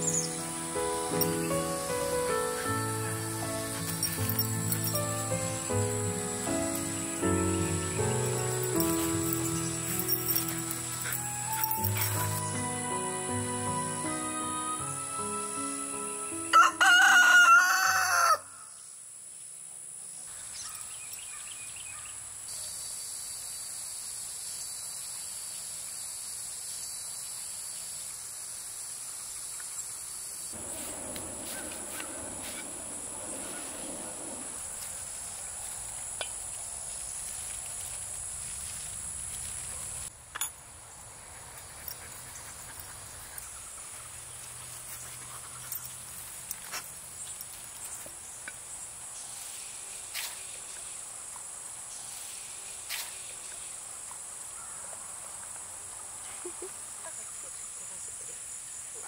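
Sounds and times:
insects buzzing: 0.0 - 40.1
rooster crowing: 16.5 - 18.7.

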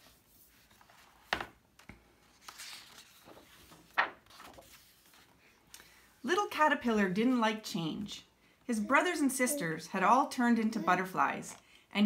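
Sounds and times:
paper rustling: 0.0 - 5.6.

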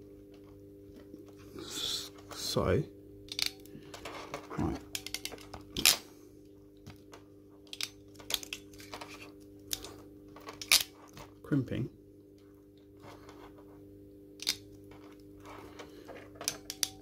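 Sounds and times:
faint hum: 0.0 - 17.0.

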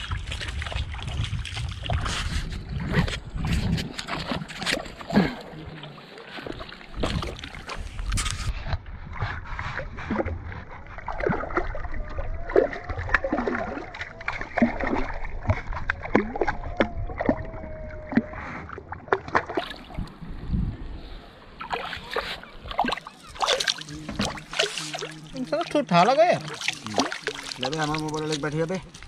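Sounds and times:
fish splashing in water: 9.8 - 20.1, 21.6 - 29.0.

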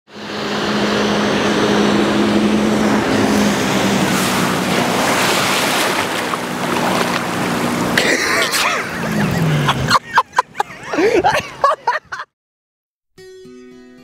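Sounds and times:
rush of churned water: 0.1 - 9.3
boat engine passing: 0.1 - 11.2.

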